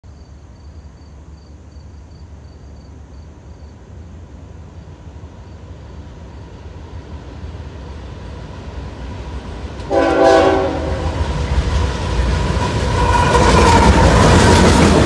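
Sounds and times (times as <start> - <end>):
insect chirping: 0.1 - 8.4
distant diesel locomotive rumble: 0.1 - 15.0.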